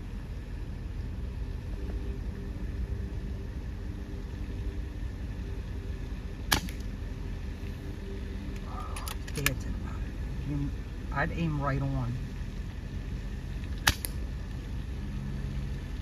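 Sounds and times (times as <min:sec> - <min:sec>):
truck engine idling: 0:00.0 - 0:16.0
sharp crack: 0:06.5 - 0:06.9, 0:13.6 - 0:14.3.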